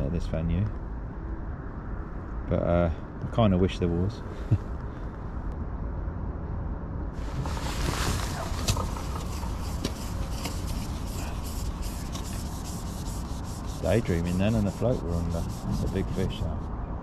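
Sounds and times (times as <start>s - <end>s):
scraping rub with clicks: 7.2s - 16.6s.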